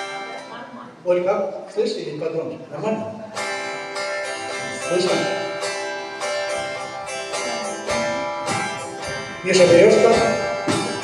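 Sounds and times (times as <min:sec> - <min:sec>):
electric guitar chords: 0:03.1 - 0:11.0
man speaking: 0:04.7 - 0:05.5, 0:09.4 - 0:10.6.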